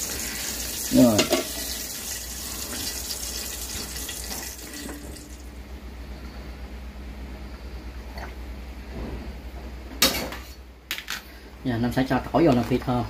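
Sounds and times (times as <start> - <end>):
hot oil sizzling: 0.0 - 5.5.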